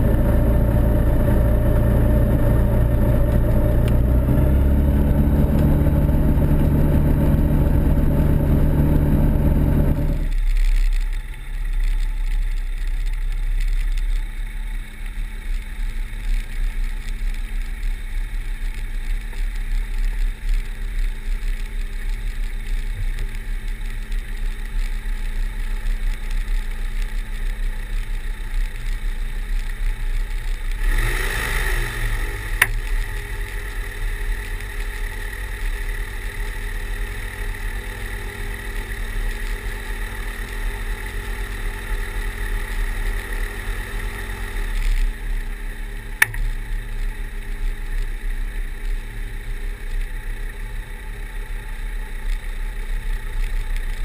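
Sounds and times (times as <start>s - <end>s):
light aircraft engine and propeller: 0.0s - 54.0s
sharp clicks: 46.2s - 46.6s.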